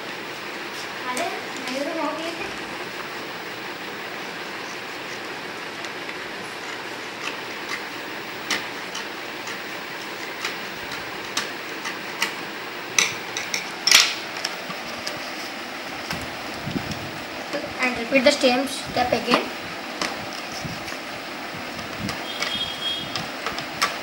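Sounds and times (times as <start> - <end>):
scissors snipping paper: 6.6 - 12.4.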